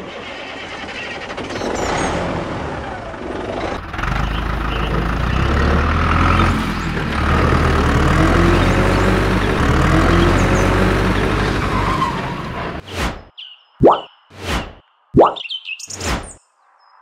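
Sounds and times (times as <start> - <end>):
large engine rumbling: 0.0 - 12.8.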